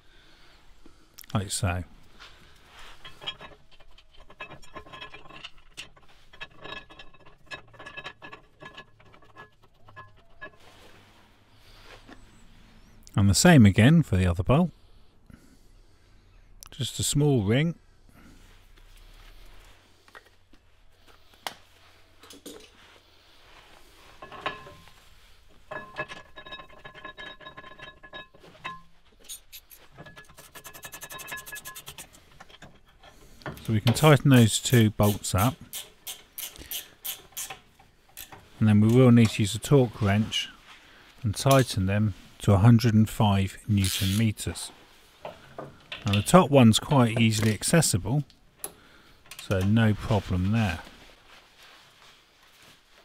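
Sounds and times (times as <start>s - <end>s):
metal bolt clicking and scraping: 2.8s - 11.0s, 24.1s - 40.0s, 45.2s - 49.8s.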